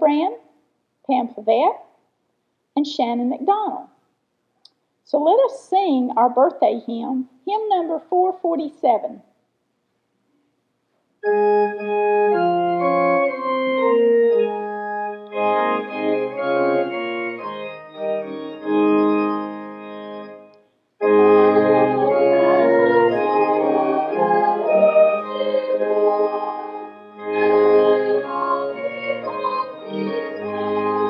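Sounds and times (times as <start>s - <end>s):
church organ playing chords: 11.2s - 31.0s.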